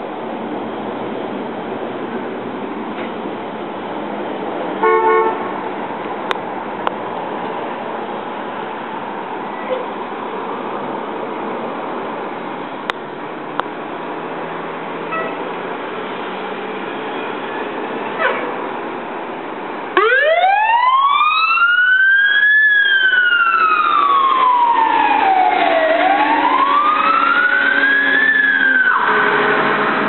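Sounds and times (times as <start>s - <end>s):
fire truck engine running: 0.0s - 30.0s
wailing siren: 20.0s - 30.0s.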